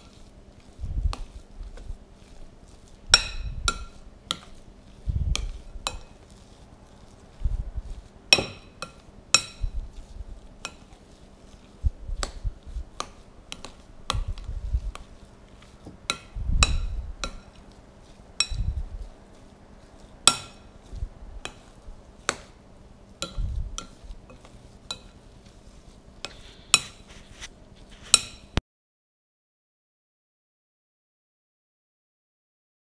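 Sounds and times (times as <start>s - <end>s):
mash being stirred: 0.0s - 28.6s
metal spoon clinking glass bowl: 8.3s - 9.8s, 18.4s - 18.7s, 23.2s - 25.2s.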